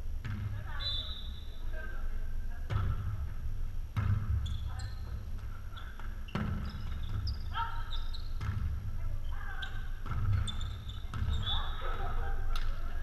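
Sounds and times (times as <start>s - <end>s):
volleyball slaps: 0.2s - 0.6s, 3.9s - 4.5s, 5.2s - 8.9s, 10.0s - 12.9s.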